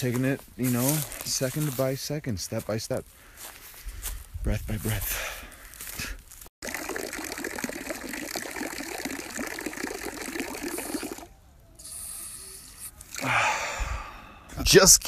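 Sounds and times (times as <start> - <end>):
fountain water splashing into basin: 6.6 - 11.3.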